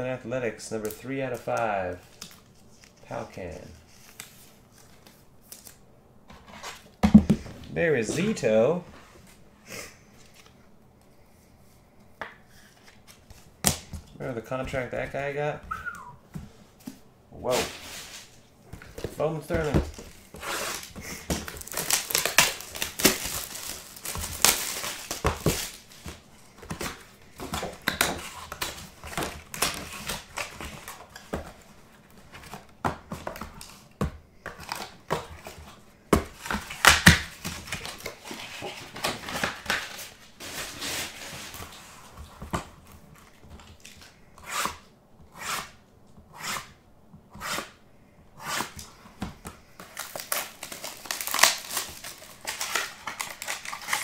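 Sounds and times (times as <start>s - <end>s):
card packs rustling: 17.4s - 44.1s, 49.4s - 54.0s
plastic wrap crinkling and tearing: 19.5s - 26.3s, 49.8s - 54.0s.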